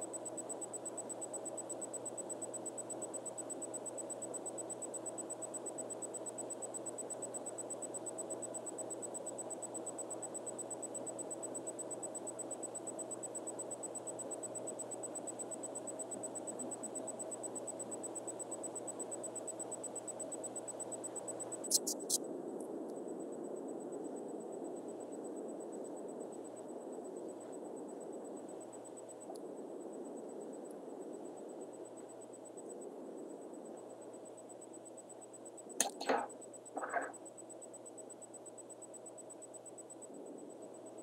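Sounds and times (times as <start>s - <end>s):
electrical hiss and hum: 12.0s - 41.0s
sharp clicks: 35.8s - 37.2s.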